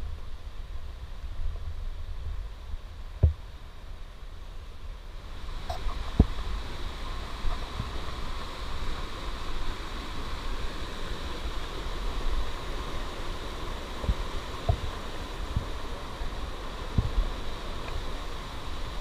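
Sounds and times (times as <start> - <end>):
stream rushing over rocks: 0.0 - 19.0.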